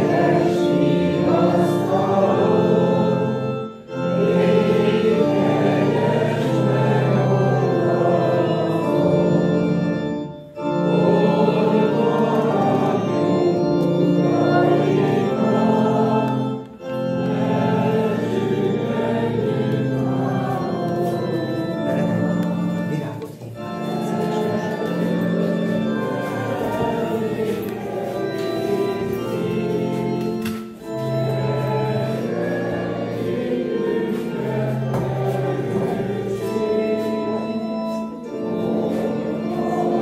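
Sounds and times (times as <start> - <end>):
congregation singing: 0.0 - 40.0
organ playing hymn chords: 0.0 - 40.0.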